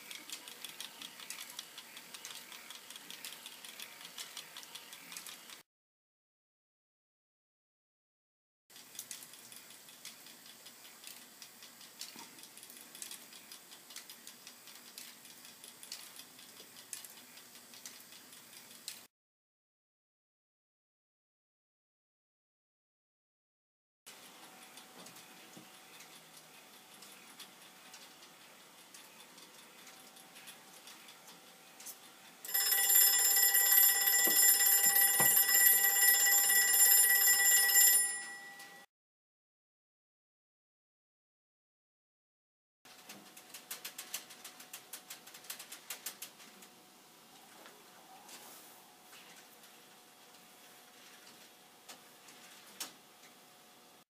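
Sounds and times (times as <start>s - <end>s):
clockwork ticking: 0.0s - 5.6s, 8.7s - 19.1s, 24.1s - 38.9s
plastic gears clicking and rattling: 0.0s - 5.6s, 8.7s - 19.0s, 42.9s - 46.7s
electric bell ringing: 32.4s - 38.9s.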